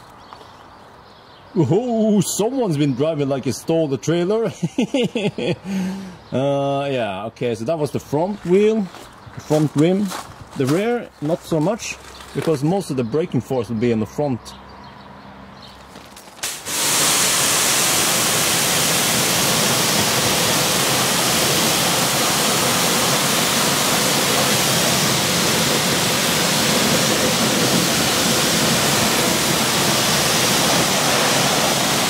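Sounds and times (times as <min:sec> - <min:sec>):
pressure washer spraying water: 0:16.4 - 0:32.0.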